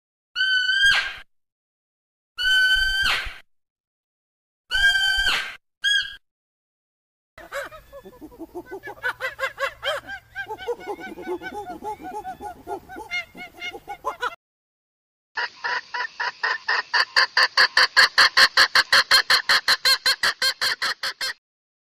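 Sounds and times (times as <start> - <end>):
poultry calling: 7.4 - 14.4.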